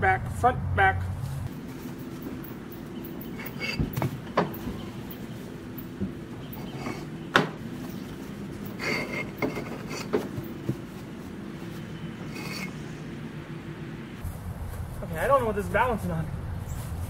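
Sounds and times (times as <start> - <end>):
dry leaves rustling underfoot: 1.1 - 3.0, 14.2 - 17.0.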